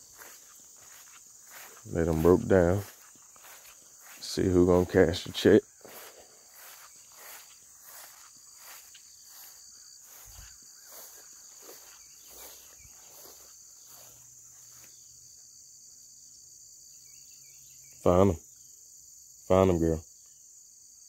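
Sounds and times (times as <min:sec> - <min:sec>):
footsteps through tall grass: 0:00.0 - 0:15.4
insects chirring: 0:00.0 - 0:21.0.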